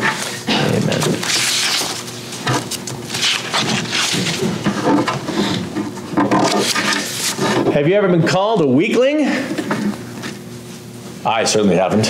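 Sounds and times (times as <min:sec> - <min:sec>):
paper rustling and shuffling: 0:00.0 - 0:07.6.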